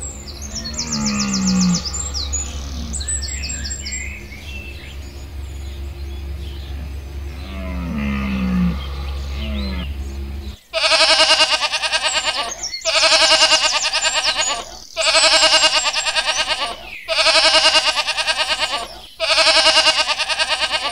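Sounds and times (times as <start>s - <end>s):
low rumble: 0.0s - 10.7s
goats bleating: 10.8s - 20.9s.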